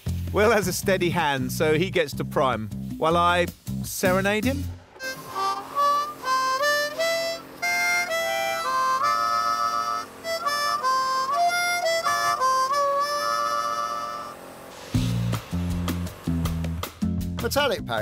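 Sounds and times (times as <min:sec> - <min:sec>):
harmonica slow melody: 0:04.1 - 0:17.3.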